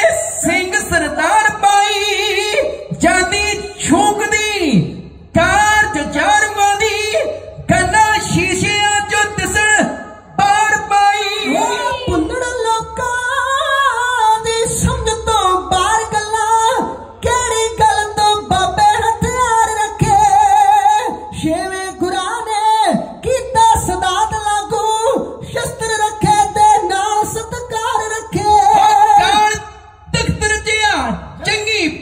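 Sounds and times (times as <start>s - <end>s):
men chanting through loudspeakers: 0.0s - 16.0s, 25.1s - 30.4s.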